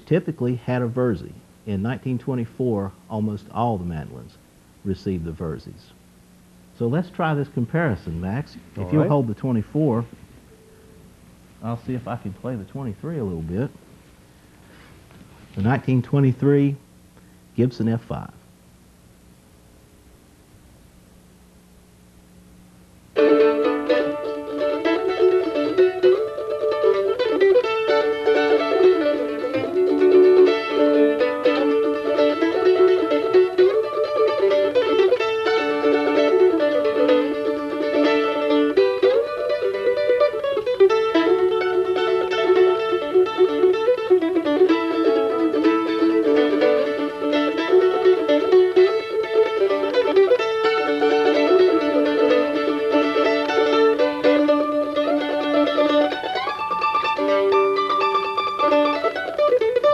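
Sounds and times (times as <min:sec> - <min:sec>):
mandolin playing a tune: 0:00.0 - 0:01.3, 0:08.8 - 0:10.1, 0:23.2 - 0:59.9.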